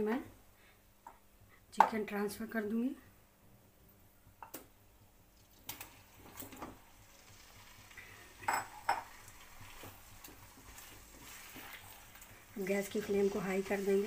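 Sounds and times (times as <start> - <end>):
low sizzle of frying: 2.0 - 14.0.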